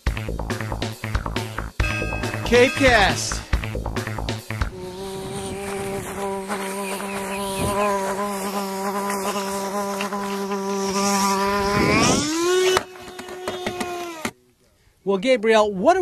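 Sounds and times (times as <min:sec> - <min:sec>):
fly wings buzzing: 0:01.8 - 0:14.4.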